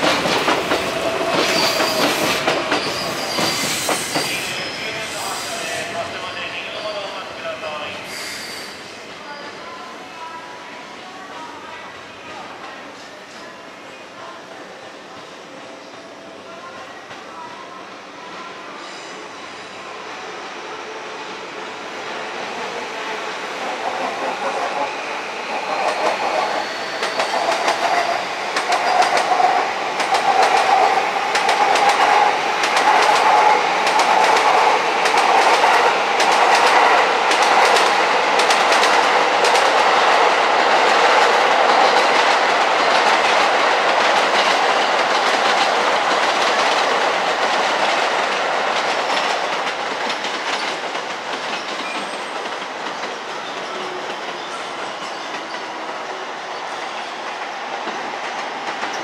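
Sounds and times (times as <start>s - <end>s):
train wheels clicking over rail joints: 0.0s - 4.4s, 25.7s - 54.4s.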